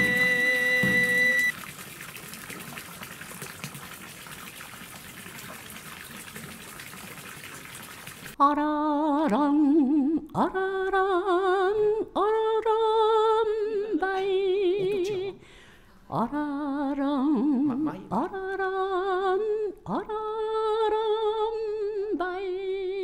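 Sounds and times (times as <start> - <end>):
bamboo flute note: 0.0 - 1.5
woman singing unaccompanied: 0.0 - 1.5, 8.4 - 15.4, 16.1 - 23.0
water splashing into stone basin: 0.0 - 8.4.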